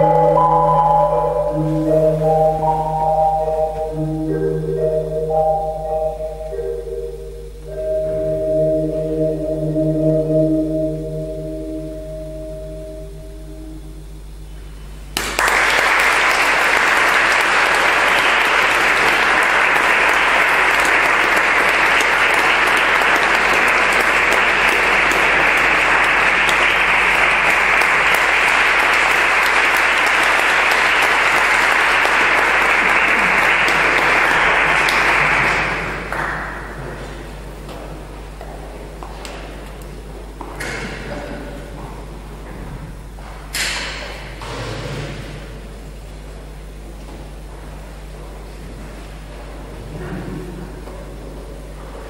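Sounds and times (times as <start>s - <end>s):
audience applauding: 15.2s - 37.1s.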